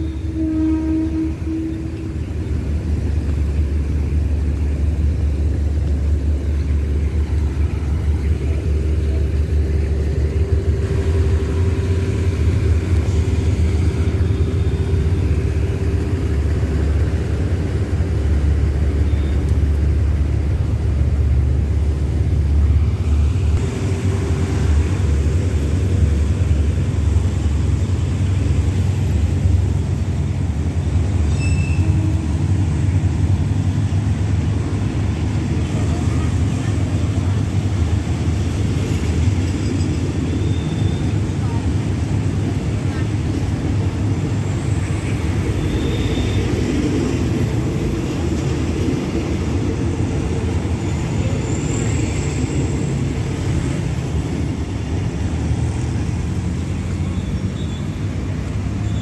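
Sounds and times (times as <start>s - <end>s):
train horn: 0.0s - 2.4s, 10.9s - 17.0s, 31.3s - 32.6s
train rumbling with engine drone: 0.0s - 59.0s.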